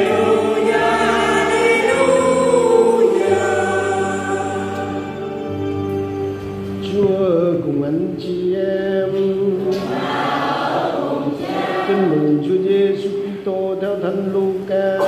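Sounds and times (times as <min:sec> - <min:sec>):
church choir chanting: 0:00.0 - 0:06.0, 0:09.8 - 0:12.3.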